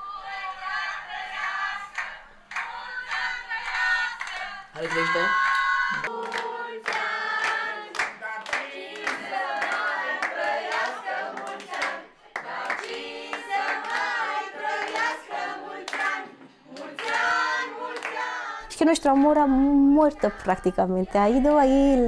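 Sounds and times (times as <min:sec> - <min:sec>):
group singing birthday song: 0:00.0 - 0:22.0
hands clapping in time: 0:04.2 - 0:14.2.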